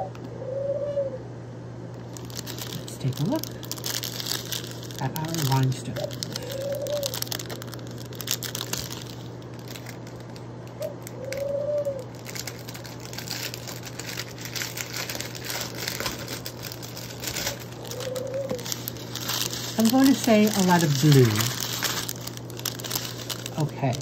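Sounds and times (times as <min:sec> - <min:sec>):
plastic bags crinkling: 0:02.0 - 0:24.0.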